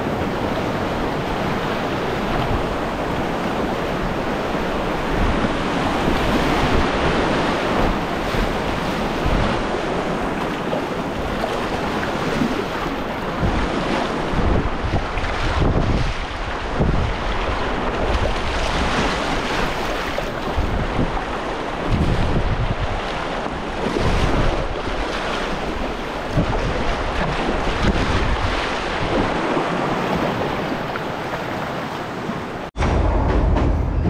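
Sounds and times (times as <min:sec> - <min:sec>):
wind buffeting microphone: 0:00.0 - 0:34.0.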